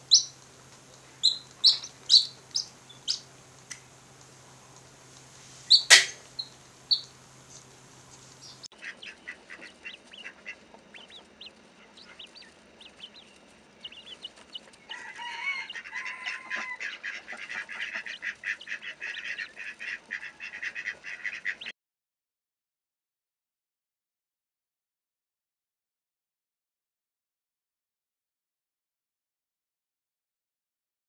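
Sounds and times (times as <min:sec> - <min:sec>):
chick peeping loudly: 0:00.0 - 0:03.9, 0:05.7 - 0:07.7, 0:08.4 - 0:21.7
quail chirping chatter: 0:00.0 - 0:21.7.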